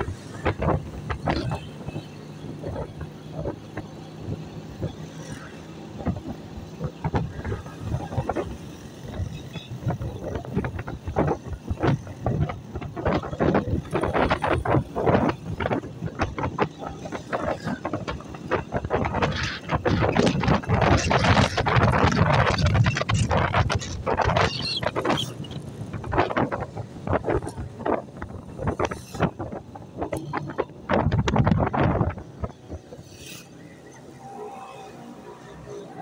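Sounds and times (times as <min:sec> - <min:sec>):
passing traffic: 0:00.0 - 0:36.0
wind buffeting microphone: 0:00.0 - 0:36.0.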